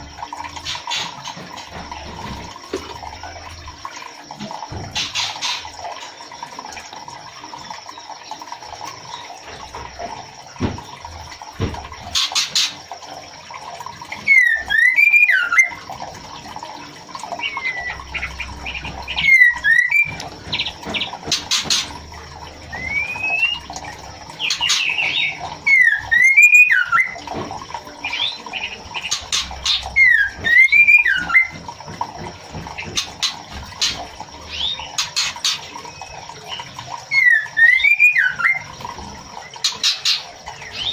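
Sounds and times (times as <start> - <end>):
steady background hum: 0.0 - 40.9
bird whistling call: 14.3 - 15.8, 19.1 - 20.2, 22.7 - 23.7, 24.7 - 27.2, 29.7 - 31.5, 37.1 - 38.6.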